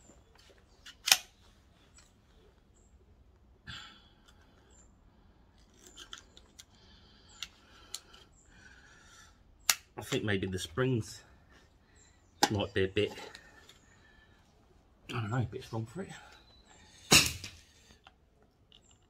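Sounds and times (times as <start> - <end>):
metal clicks and scrapes: 5.6 - 6.7.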